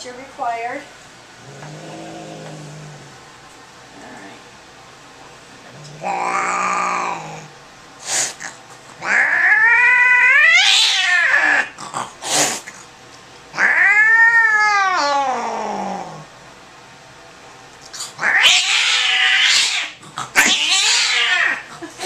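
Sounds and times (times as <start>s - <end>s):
cat yowling: 6.0s - 7.5s, 9.0s - 11.8s, 13.5s - 16.2s, 18.2s - 21.7s.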